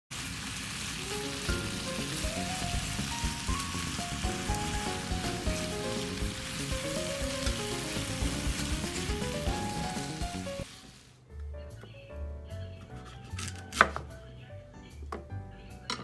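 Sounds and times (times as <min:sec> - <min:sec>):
meat sizzling in a frying pan: 0:00.1 - 0:11.2.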